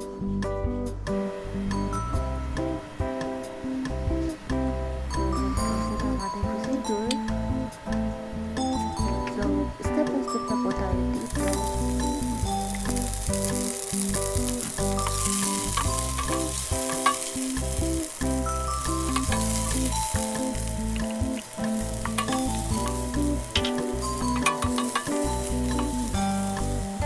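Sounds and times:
background tune: 0:01.2 - 0:27.0
onion sizzling in oil: 0:01.2 - 0:27.0
wooden spoon stirring: 0:11.2 - 0:26.9.

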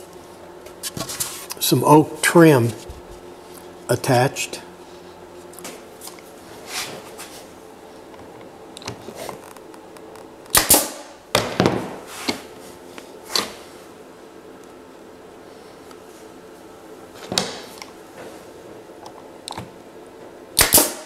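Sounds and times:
nail gun firing: 0:10.5 - 0:11.6, 0:20.6 - 0:21.0.

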